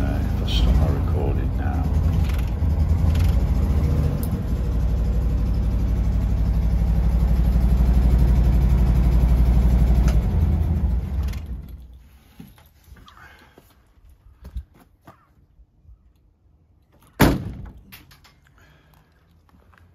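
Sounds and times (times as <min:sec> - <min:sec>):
air-cooled engine running: 0:00.0 - 0:11.6.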